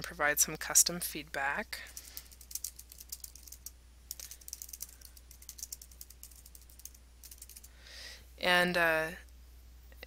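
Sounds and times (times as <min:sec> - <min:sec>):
computer keyboard typing: 0:01.9 - 0:07.7.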